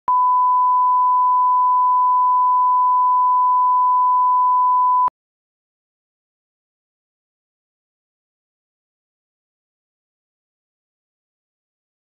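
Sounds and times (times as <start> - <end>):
test tone beep: 0.1 - 5.1.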